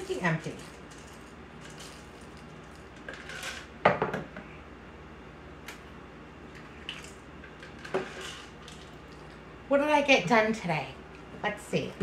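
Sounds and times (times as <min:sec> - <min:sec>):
peppercorns pouring into grinder: 0:00.1 - 0:03.7, 0:07.7 - 0:08.9.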